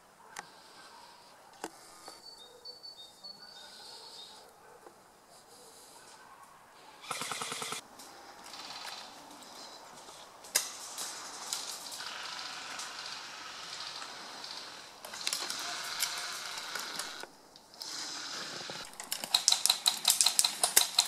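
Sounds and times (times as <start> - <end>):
dry leaves rustling and crackling: 9.0 - 12.2
sharp clicks: 10.4 - 18.0, 18.6 - 21.0.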